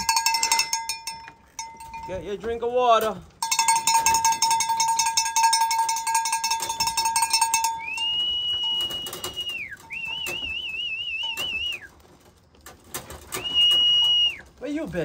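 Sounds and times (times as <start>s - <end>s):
rapid ringing rattle: 0.0s - 10.5s
person whistling long note: 7.8s - 11.8s, 13.3s - 14.4s
warbling whistle: 7.8s - 11.9s, 13.3s - 14.4s.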